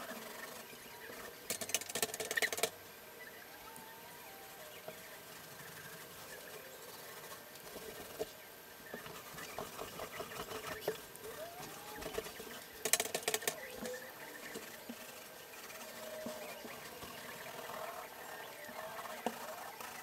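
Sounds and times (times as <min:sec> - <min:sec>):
rapid sharp clicks: 0:01.5 - 0:02.8, 0:09.1 - 0:20.0.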